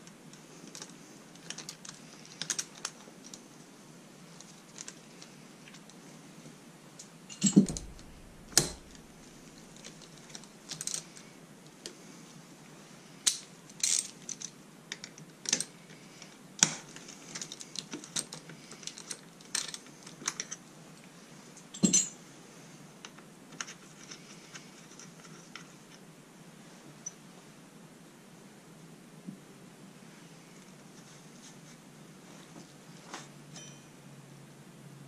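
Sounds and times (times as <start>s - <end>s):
metallic clicks of hand tools: 7.3s - 9.0s.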